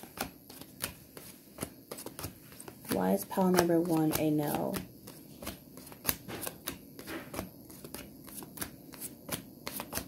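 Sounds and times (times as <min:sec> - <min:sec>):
cards being shuffled: 0:00.0 - 0:10.0.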